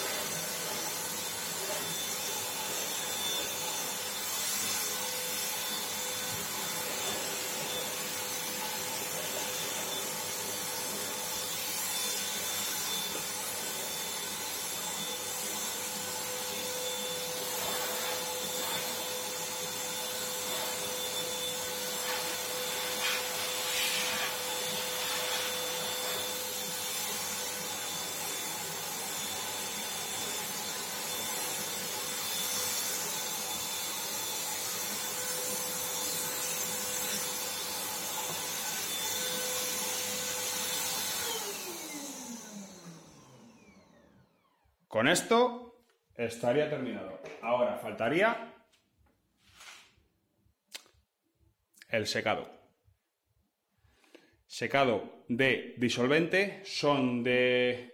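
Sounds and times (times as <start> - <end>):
spray hiss: 22.1 - 24.4.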